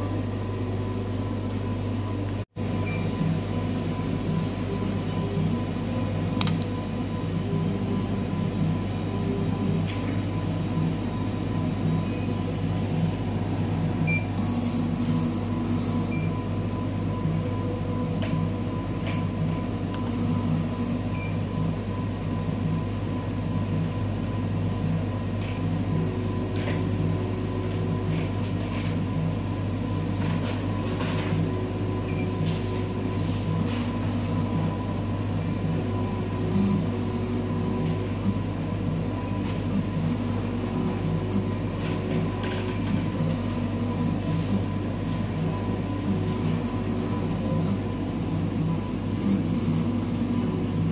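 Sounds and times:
machine hum with pulsing beat: 0.0s - 50.9s.

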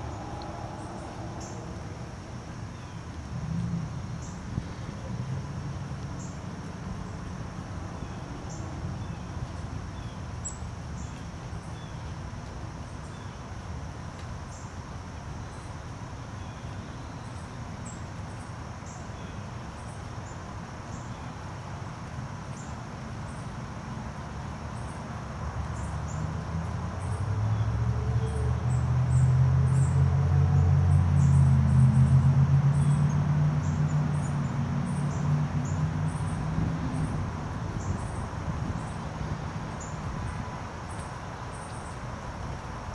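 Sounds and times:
steady low rumble: 0.0s - 2.6s.

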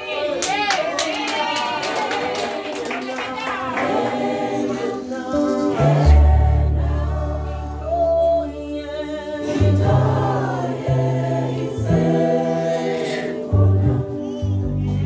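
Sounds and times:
choir singing in harmony: 3.6s - 15.0s.

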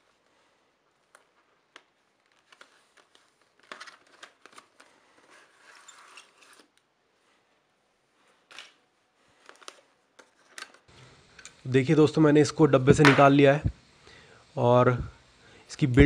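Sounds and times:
plastic packaging crackling: 1.0s - 6.8s.

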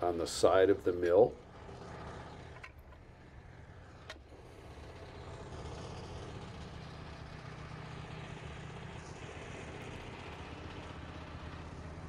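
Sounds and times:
low engine rumble: 0.0s - 12.0s.

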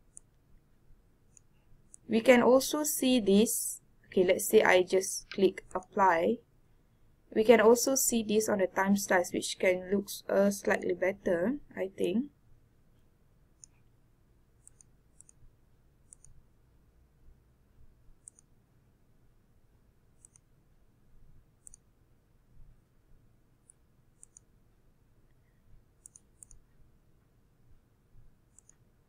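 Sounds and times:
quiet room hum: 0.0s - 29.0s
computer mouse button clicks: 14.6s - 15.4s, 16.1s - 16.4s, 18.2s - 18.5s, 20.2s - 20.4s, 21.6s - 21.8s, 23.6s - 24.5s, 26.0s - 26.6s, 28.5s - 28.8s.

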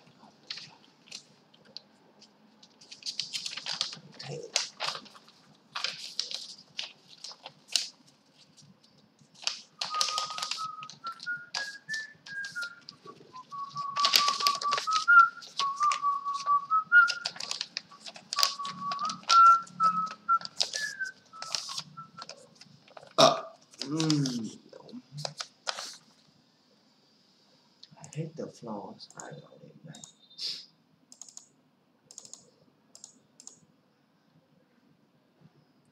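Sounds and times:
person whistling a tune: 9.8s - 17.4s, 18.0s - 22.2s
keyboard and mouse clicks: 31.1s - 33.6s.

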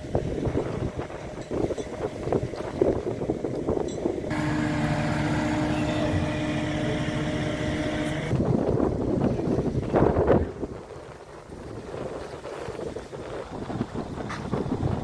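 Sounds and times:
wind buffeting microphone: 0.0s - 15.0s
crane engine humming: 4.3s - 8.4s.

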